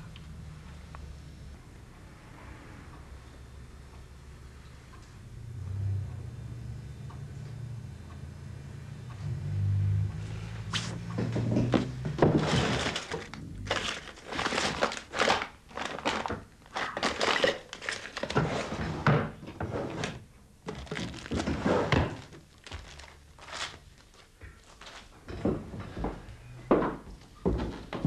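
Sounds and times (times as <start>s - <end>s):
papers rustling: 11.7s - 18.9s, 19.8s - 25.2s.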